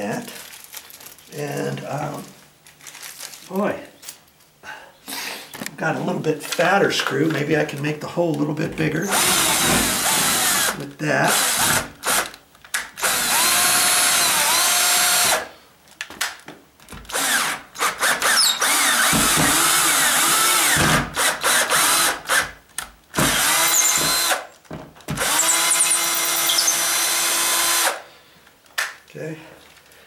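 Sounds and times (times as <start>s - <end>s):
cordless drill driving a screw: 9.1s - 12.4s, 13.0s - 15.5s, 17.1s - 22.5s, 23.2s - 24.5s, 25.2s - 28.1s.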